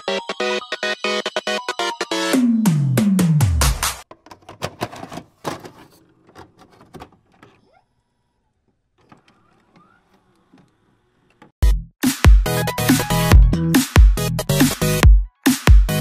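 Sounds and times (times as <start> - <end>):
tape deck clicks and clunks: 4.0 - 7.7.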